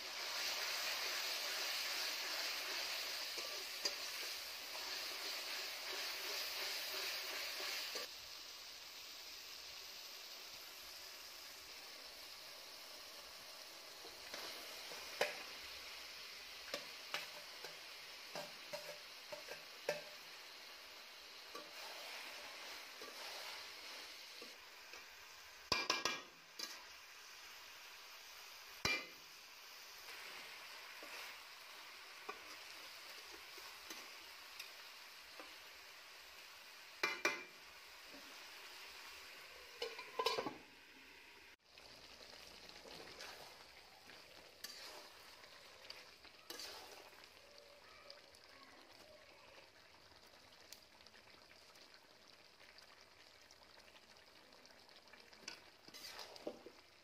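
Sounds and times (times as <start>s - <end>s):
meat sizzling in oil: 0.0s - 57.0s
spatula scraping a pan: 16.7s - 20.2s, 21.5s - 24.6s, 30.1s - 31.5s, 44.6s - 47.2s, 55.5s - 56.7s
metal lid clanking: 39.8s - 40.6s.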